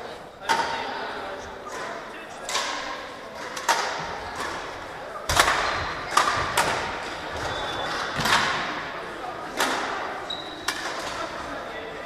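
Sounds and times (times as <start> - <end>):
rackets hitting shuttlecock: 1.7 - 8.9, 9.5 - 11.2.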